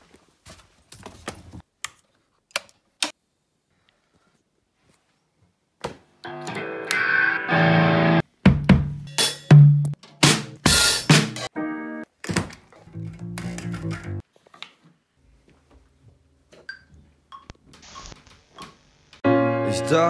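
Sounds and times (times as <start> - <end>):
distorted electric guitar chord: 6.3 - 8.2
kick and snare drum hits: 8.4 - 11.5.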